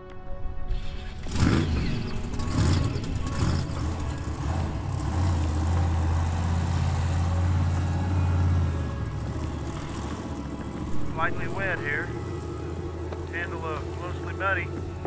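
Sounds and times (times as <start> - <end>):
truck engine revving: 0.7 - 15.0.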